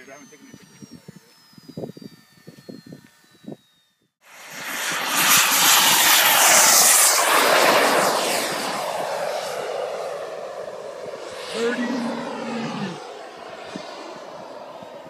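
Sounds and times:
model jet turbine rushing hiss: 4.2s - 15.0s.

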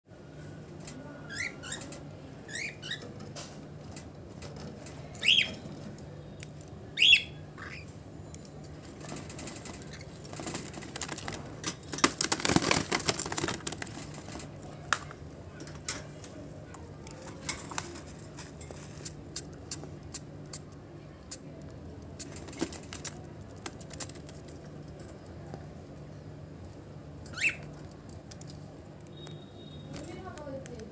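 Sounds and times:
cockatiels chirping: 7.0s - 7.9s, 27.3s - 27.7s.

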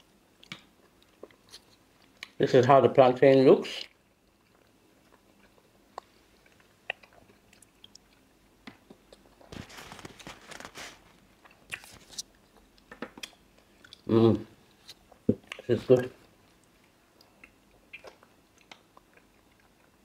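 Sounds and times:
chewing and biting: 4.2s - 10.6s, 16.6s - 20.0s.

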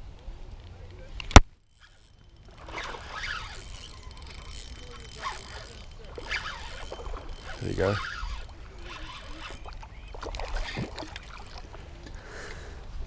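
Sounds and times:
spinning reel cranking: 1.7s - 12.1s.

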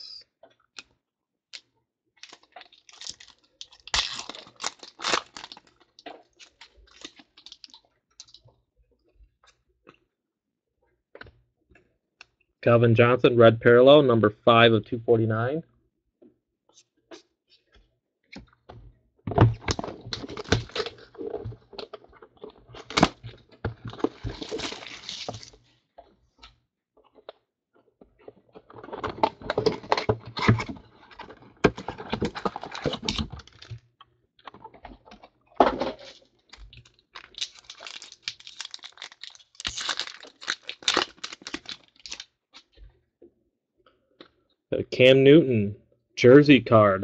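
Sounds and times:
packaging tearing and crinkling: 2.2s - 8.4s, 19.5s - 25.6s, 28.8s - 33.8s, 35.8s - 42.3s.

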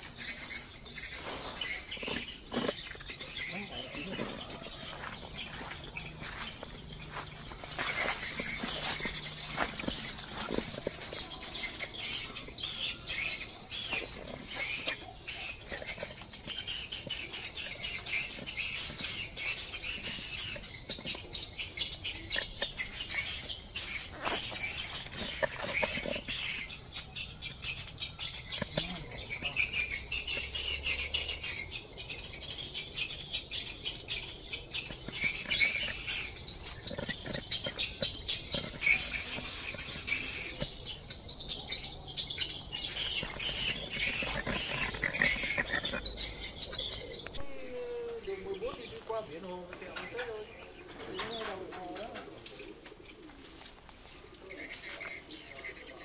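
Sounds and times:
leaves rustling and crackling: 1.2s - 11.7s, 47.4s - 55.3s
high-pitched chirping: 34.9s - 51.5s.

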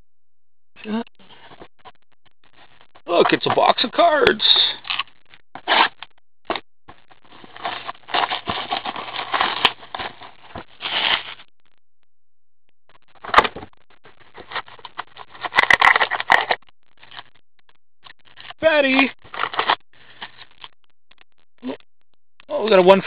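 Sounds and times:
cardboard and foil packs rustling: 7.2s - 11.4s, 13.2s - 17.2s, 18.4s - 20.6s
plastic shrink-wrap crinkling: 7.3s - 11.4s.

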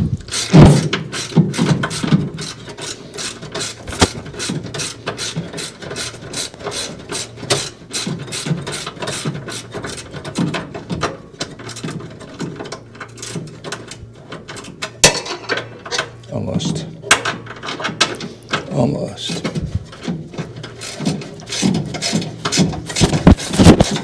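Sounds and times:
ratcheting wrench clicking: 0.3s - 10.2s, 20.7s - 24.0s.

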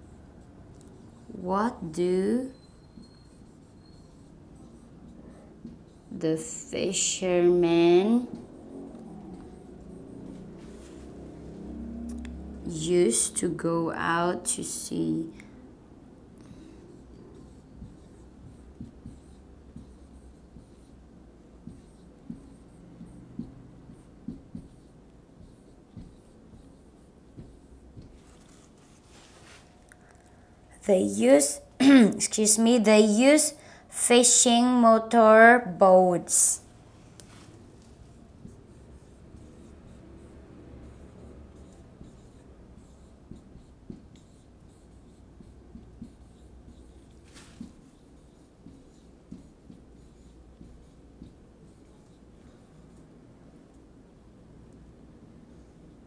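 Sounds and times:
marker writing on whiteboard: 0.0s - 15.6s, 16.4s - 29.9s, 30.8s - 56.0s
marker tip tapping board: 21.6s - 26.6s, 27.3s - 28.2s, 41.6s - 51.4s.

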